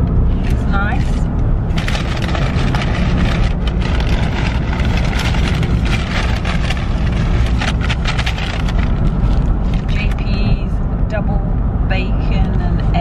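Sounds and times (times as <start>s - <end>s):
road rumble inside a car: 0.0s - 13.0s
paper bag rustling: 0.4s - 10.2s.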